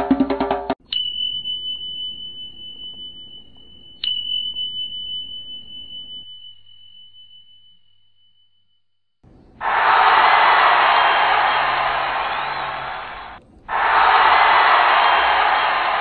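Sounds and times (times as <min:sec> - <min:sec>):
high bell-like chime: 0:00.8 - 0:08.8.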